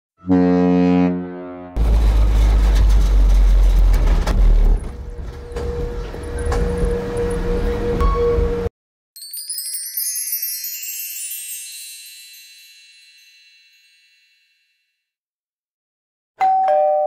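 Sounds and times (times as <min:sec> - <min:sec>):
ship's horn: 0:00.2 - 0:02.2, 0:05.2 - 0:08.7
low rumble with knocks: 0:01.8 - 0:08.7.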